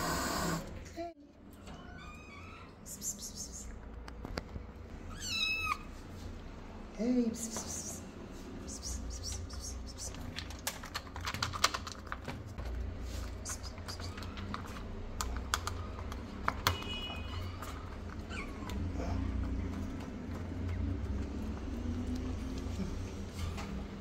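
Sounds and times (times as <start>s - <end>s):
kittens eating: 8.6s - 24.0s.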